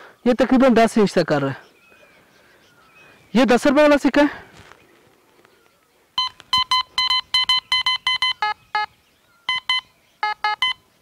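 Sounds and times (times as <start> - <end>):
metal detector beeping: 6.2 - 10.9.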